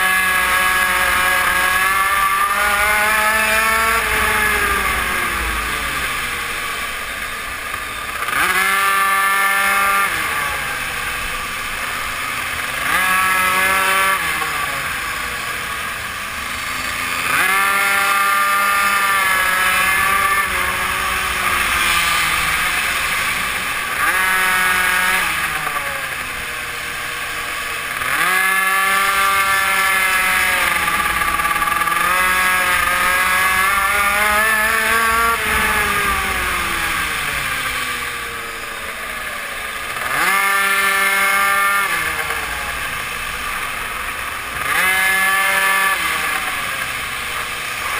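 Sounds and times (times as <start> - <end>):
mini moto engine revving: 0.0 - 47.9
wind rush: 34.1 - 38.5.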